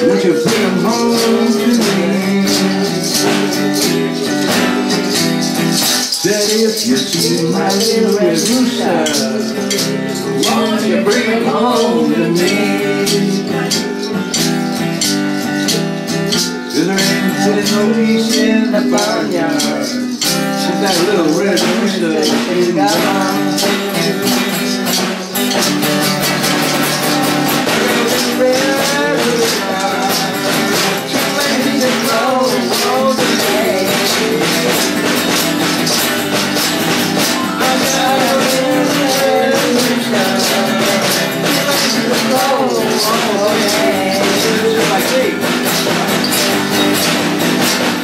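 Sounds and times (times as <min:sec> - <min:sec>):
woman singing: 0:00.0 - 0:03.9, 0:06.2 - 0:13.9, 0:26.6 - 0:35.3, 0:37.3 - 0:45.4
strummed acoustic guitar: 0:00.0 - 0:48.0
tambourine shaking: 0:00.0 - 0:48.0.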